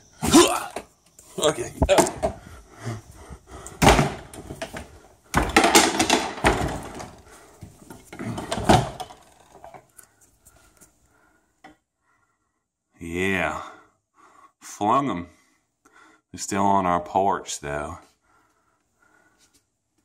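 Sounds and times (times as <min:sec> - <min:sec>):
door slamming shut: 0:03.8 - 0:07.2
knocks and clatters: 0:03.8 - 0:09.9.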